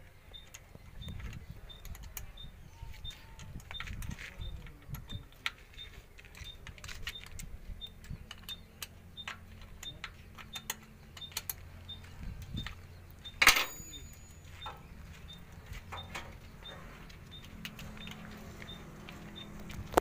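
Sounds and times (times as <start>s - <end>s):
metallic clicks and clinks: 6.2s - 20.0s
metal clatter: 13.4s - 14.7s.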